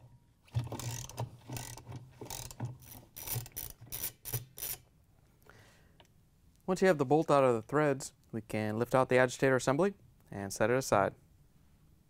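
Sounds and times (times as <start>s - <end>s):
socket ratchet clicking: 0.8s - 4.8s.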